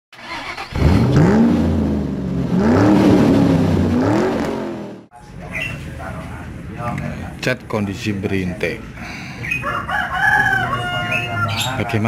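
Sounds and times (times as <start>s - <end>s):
car engine revving: 0.2s - 5.1s.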